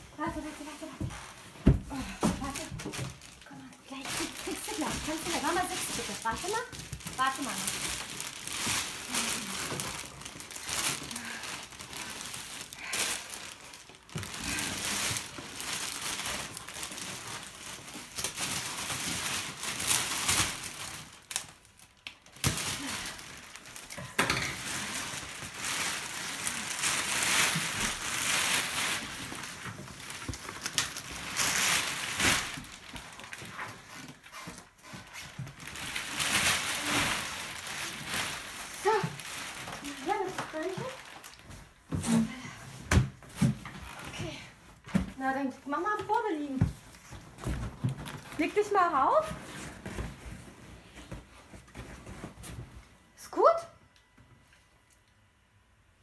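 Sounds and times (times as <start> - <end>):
plastic packaging crinkling: 0.2 - 42.2, 45.8 - 52.5.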